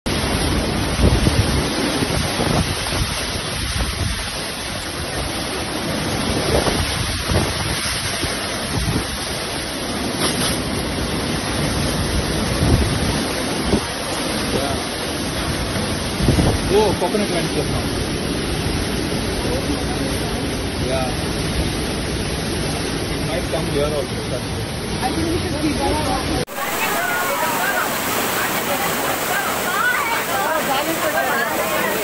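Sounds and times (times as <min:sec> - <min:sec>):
wind buffeting microphone: 0:00.1 - 0:23.2
strong gusty wind: 0:00.1 - 0:32.0.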